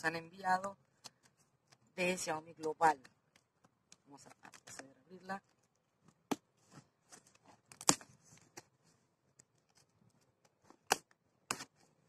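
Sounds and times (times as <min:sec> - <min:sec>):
packing tape tearing: 0:07.1 - 0:08.7.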